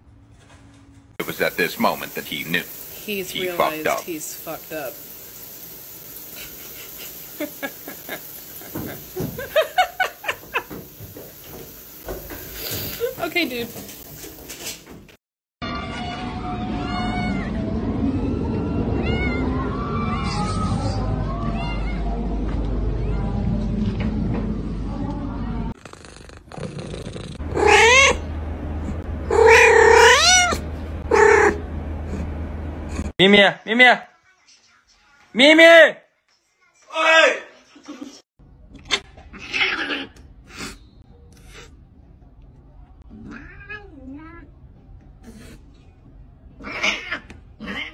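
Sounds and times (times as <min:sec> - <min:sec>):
cat meowing: 0:27.6 - 0:28.2, 0:29.3 - 0:31.6, 0:43.2 - 0:44.5, 0:46.6 - 0:47.9.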